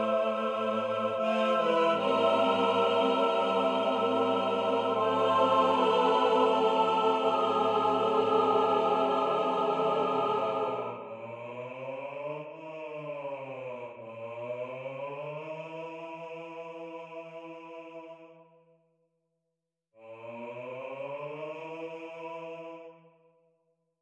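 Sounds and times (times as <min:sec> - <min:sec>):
choir holding a chord: 0:00.0 - 0:17.8.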